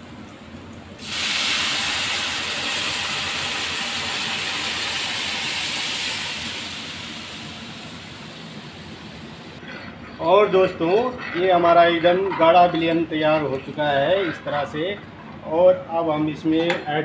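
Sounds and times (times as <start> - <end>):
stock sizzling in hot pan: 0.3 - 9.6.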